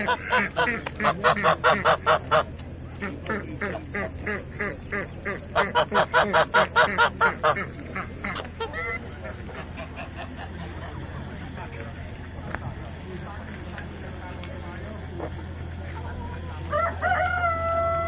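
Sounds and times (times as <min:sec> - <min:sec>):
waterfowl honking: 0:00.0 - 0:10.5.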